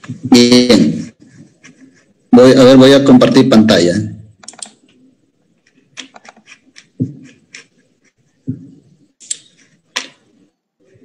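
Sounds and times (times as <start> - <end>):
keyboard and mouse clicks: 4.4 - 5.0, 5.6 - 7.8, 8.5 - 10.3.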